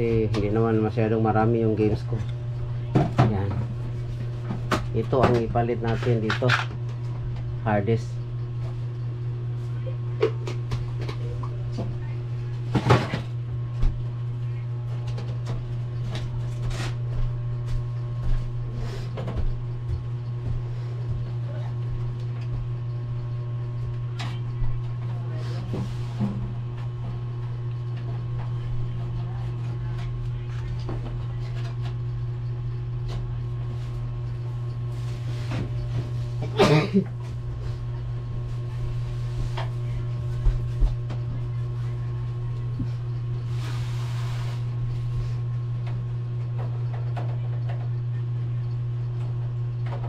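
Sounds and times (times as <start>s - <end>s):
steady low hum: 0.0s - 50.0s
person coughing: 36.4s - 37.1s.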